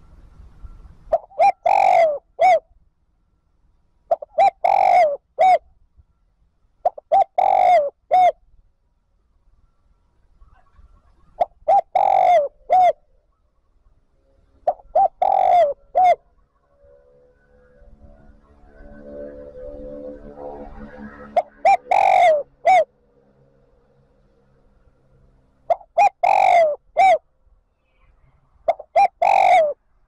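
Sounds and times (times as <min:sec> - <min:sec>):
dove cooing: 0:01.1 - 0:02.6, 0:04.1 - 0:05.6, 0:06.8 - 0:08.4, 0:10.5 - 0:13.1, 0:14.7 - 0:16.2, 0:20.6 - 0:22.9, 0:25.7 - 0:27.2, 0:28.7 - 0:29.8.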